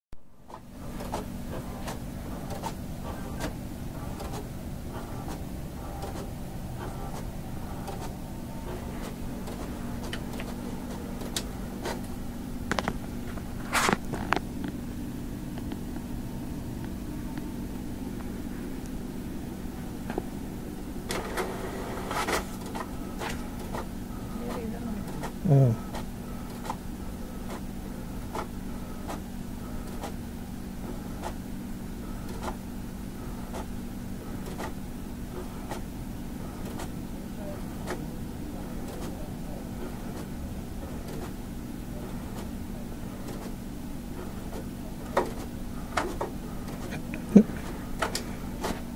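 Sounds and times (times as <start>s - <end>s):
printer humming: 0.3s - 48.9s
printer clicks: 0.5s - 12.1s.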